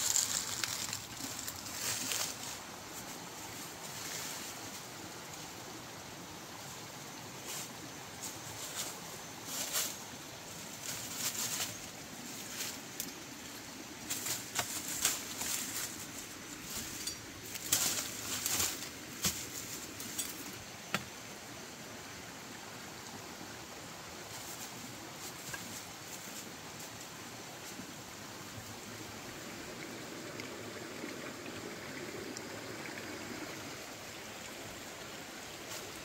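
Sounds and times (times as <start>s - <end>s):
footsteps in dry leaves: 0.0s - 4.8s, 8.5s - 20.4s.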